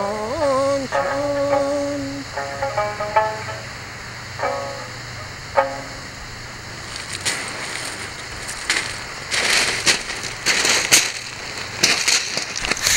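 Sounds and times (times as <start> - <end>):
plucked string note: 0.0 - 6.2
footsteps crunching on cobbles: 6.7 - 12.9.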